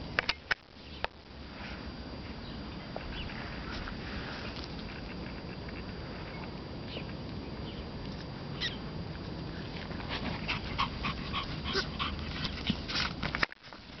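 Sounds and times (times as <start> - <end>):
dogs whimpering: 10.4 - 12.8
small dogs yipping: 10.4 - 12.8.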